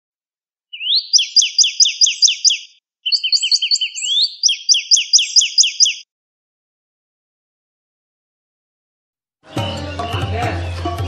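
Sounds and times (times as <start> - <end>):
bird chirping: 0.7 - 6.1.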